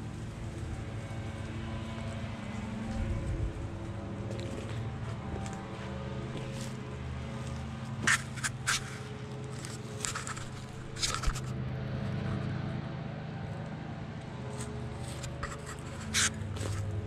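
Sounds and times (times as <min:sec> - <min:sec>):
footsteps on dry leaves: 0:00.0 - 0:11.5, 0:14.3 - 0:17.0.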